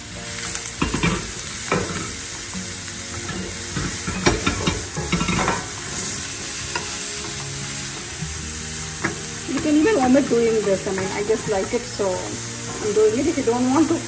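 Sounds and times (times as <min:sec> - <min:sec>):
vegetables sizzling in hot oil: 0:00.0 - 0:14.0
spatula scraping and knocking pan: 0:03.1 - 0:08.1, 0:08.9 - 0:13.4.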